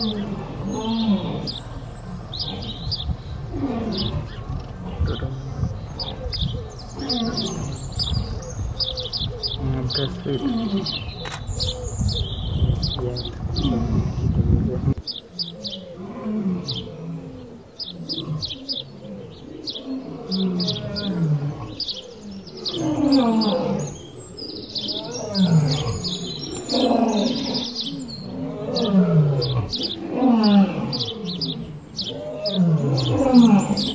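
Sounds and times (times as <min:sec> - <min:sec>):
deep animal calls: 0:00.0 - 0:33.9.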